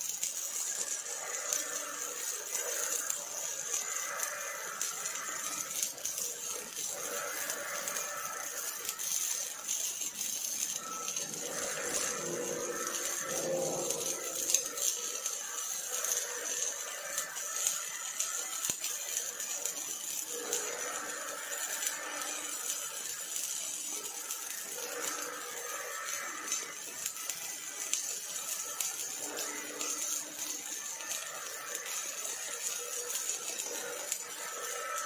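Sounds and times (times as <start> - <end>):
welding arc hissing and crackling: 0.0 - 35.0.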